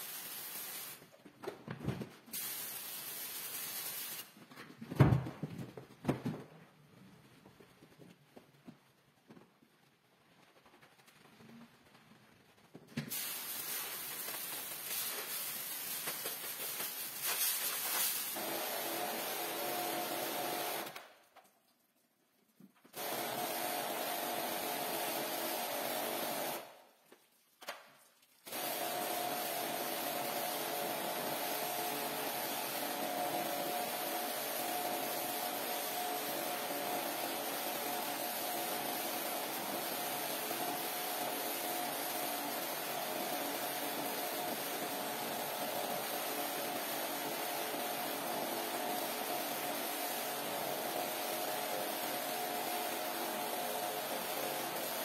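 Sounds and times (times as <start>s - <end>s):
water jet hissing: 0.0s - 1.0s, 13.1s - 20.9s, 28.5s - 55.0s
pressure washer motor hum: 17.9s - 20.9s, 23.0s - 26.6s, 28.5s - 55.0s.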